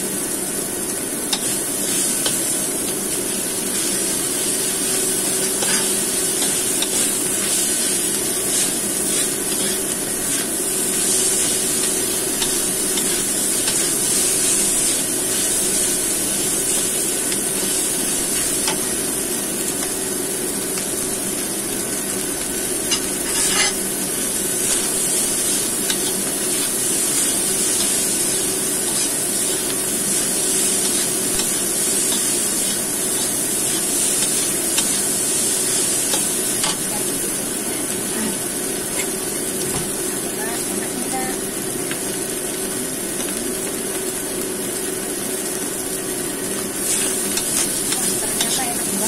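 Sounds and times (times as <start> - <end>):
rice sizzling in a wok: 0.0 - 49.0
metal spatula scraping a wok: 5.5 - 7.5, 22.9 - 23.9.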